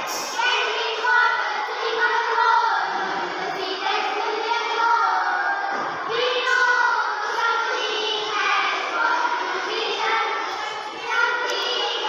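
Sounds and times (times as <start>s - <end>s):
children singing into a microphone: 0.0s - 12.0s.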